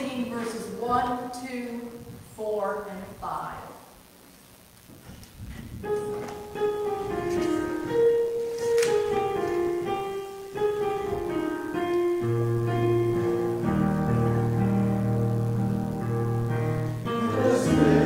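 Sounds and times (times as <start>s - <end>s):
piano bass line: 5.4s - 18.0s
piano playing hymn: 5.8s - 18.0s.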